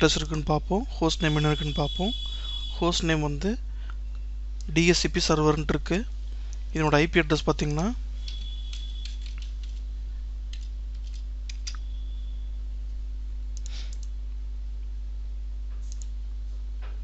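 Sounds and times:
low electrical hum: 0.0s - 17.0s
computer keyboard keystrokes: 7.7s - 9.8s, 10.5s - 11.8s, 15.8s - 16.1s.

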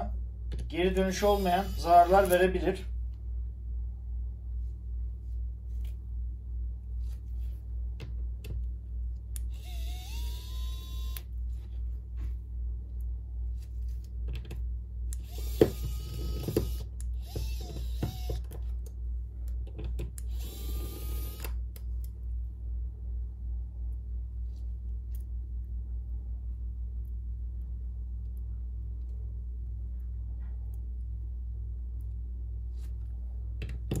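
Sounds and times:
electric screwdriver motor whining: 1.2s - 2.4s, 9.5s - 11.2s, 15.2s - 18.5s, 20.3s - 21.5s.

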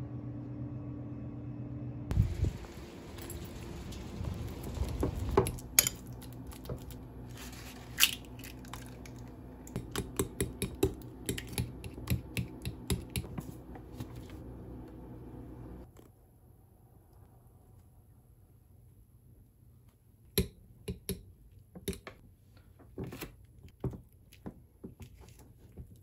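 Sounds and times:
low hum: 0.0s - 19.7s.

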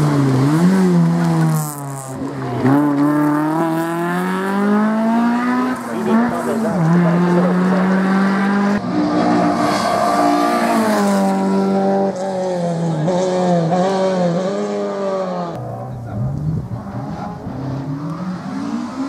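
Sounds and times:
rally car engines revving: 0.0s - 19.0s.

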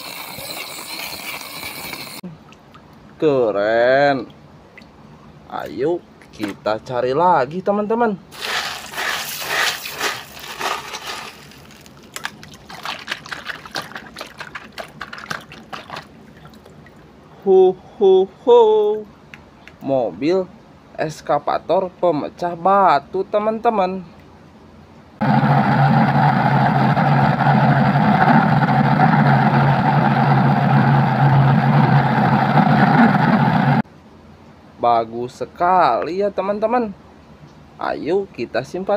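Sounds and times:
water splashing: 8.3s - 17.1s
stones scraping and clicking: 8.4s - 15.6s
motor running steadily: 25.2s - 33.8s.

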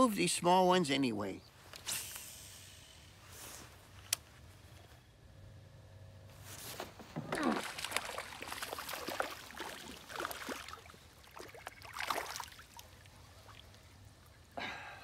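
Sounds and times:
fish splashing in water: 7.3s - 13.9s.

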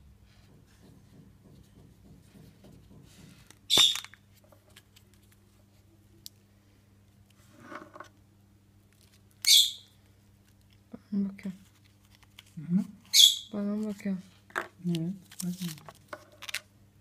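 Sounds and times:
plastic capsule twisting open: 3.5s - 5.4s.

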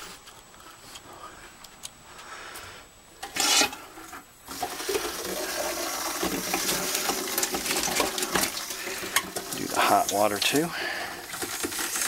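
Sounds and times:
water running into steel sink: 4.5s - 12.0s.

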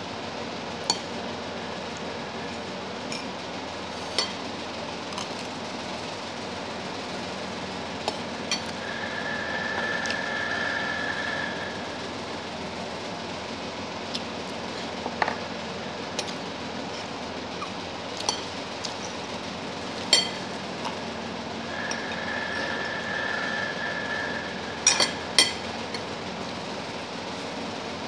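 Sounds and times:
steady background noise: 0.0s - 28.0s
faint high steady tone: 8.5s - 12.9s, 21.7s - 26.1s.

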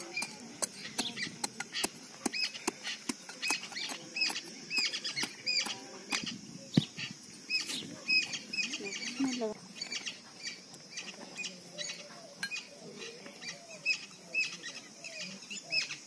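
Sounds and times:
hand tool digging into sandy soil: 0.0s - 6.9s.

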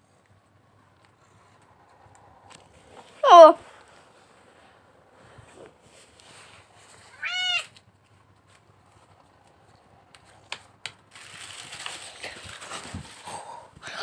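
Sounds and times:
soft rustle: 0.0s - 10.4s, 11.1s - 13.7s
cat meowing: 7.1s - 7.8s.

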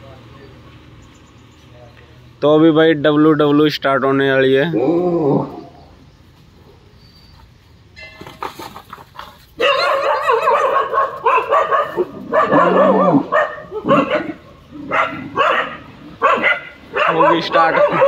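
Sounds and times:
dogs barking and yelping: 8.9s - 18.0s.

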